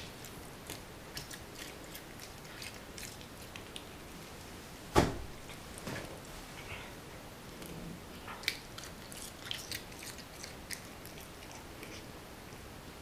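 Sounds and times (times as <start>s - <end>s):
cat chewing: 0.1s - 4.0s, 8.2s - 12.1s
thump: 4.9s - 5.3s.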